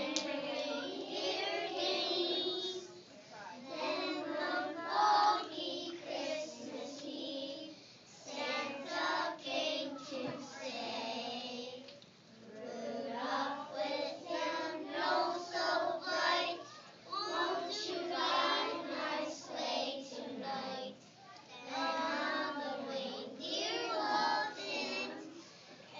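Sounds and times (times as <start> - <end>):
children singing: 0.0 - 2.9, 12.6 - 20.8, 21.7 - 25.4.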